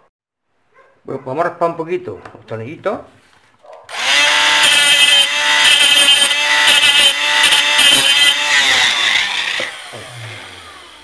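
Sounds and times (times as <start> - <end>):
rotary tool motor whine: 3.9 - 11.0.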